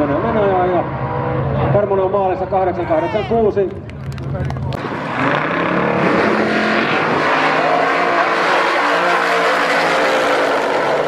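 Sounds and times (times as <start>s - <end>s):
racing car engines accelerating: 4.5s - 11.0s.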